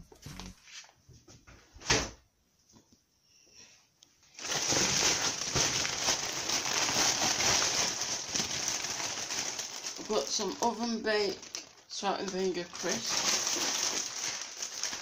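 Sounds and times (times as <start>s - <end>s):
plastic bag rustling: 4.3s - 15.0s.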